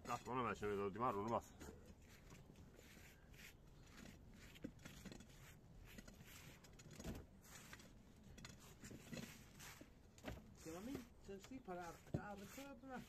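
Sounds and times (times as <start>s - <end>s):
gloved hands scuffing soil: 8.8s - 13.0s.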